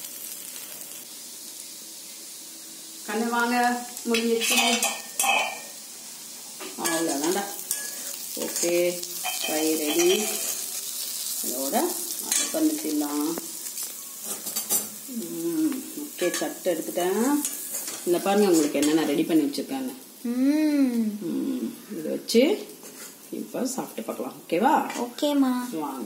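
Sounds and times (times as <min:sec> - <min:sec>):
food sizzling in a pan: 0:00.0 - 0:26.0
metal spatula scraping a pan: 0:04.2 - 0:05.8, 0:06.8 - 0:11.2, 0:17.4 - 0:19.0.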